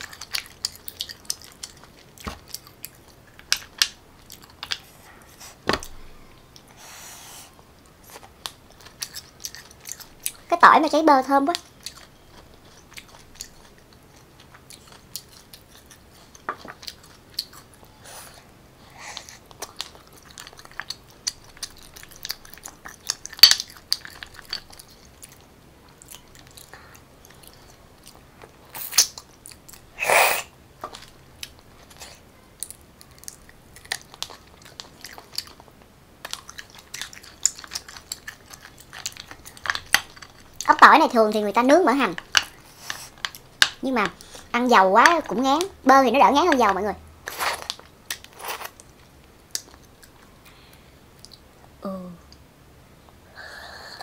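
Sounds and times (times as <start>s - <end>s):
soft chewing: 0.0s - 6.8s, 7.7s - 10.5s, 11.5s - 29.9s, 30.8s - 40.8s, 47.3s - 52.4s.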